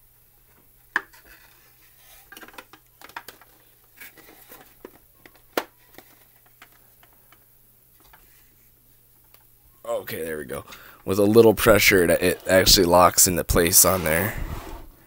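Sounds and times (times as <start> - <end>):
plastic helmet clicking and knocking: 2.3 - 3.5.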